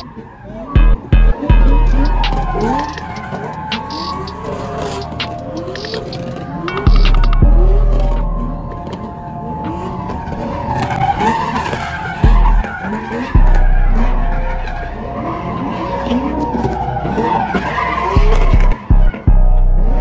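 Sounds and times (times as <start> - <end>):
tyres squealing: 0.0 - 19.0
car engine revving: 0.0 - 20.0
deep bass booms: 0.8 - 2.7, 6.9 - 8.3, 12.2 - 12.6, 13.4 - 14.6, 18.2 - 20.0.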